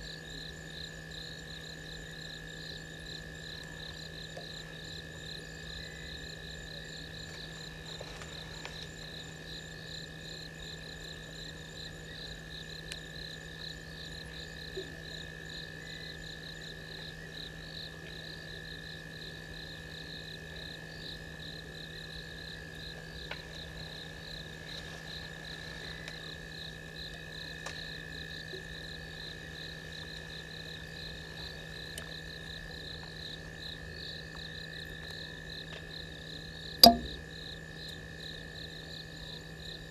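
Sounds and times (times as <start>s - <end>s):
faint ticks: 36.8s - 37.2s.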